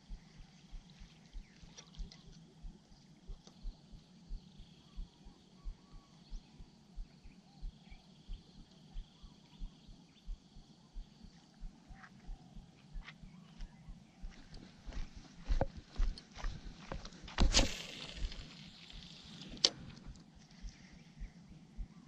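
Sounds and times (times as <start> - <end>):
bird chirps: 0.0 - 15.1, 20.6 - 22.0
insect drone: 0.0 - 22.0.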